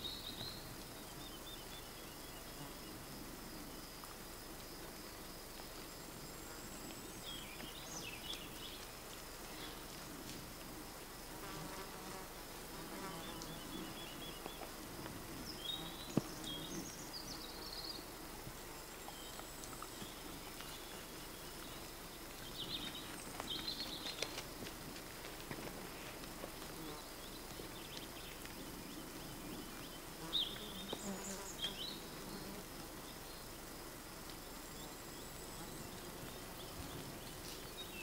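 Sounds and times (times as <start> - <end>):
insect buzzing: 11.2 - 24.6, 25.8 - 38.0.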